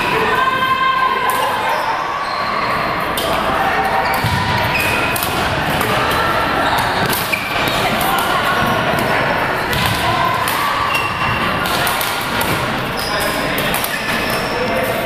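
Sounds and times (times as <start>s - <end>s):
chatter in large hall: 0.0s - 15.0s
sneaker squeaks on court floor: 4.0s - 5.5s, 6.6s - 7.9s, 9.5s - 11.6s, 12.4s - 14.8s
rackets hitting shuttlecocks: 4.2s - 6.2s, 6.8s - 9.1s, 9.7s - 14.5s.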